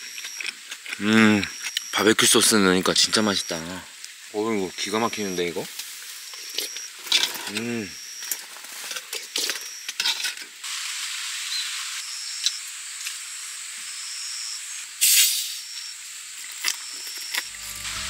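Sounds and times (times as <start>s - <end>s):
rustle: 0.0s - 13.9s
high hiss: 10.6s - 16.3s, 17.4s - 18.0s
music: 17.5s - 18.0s.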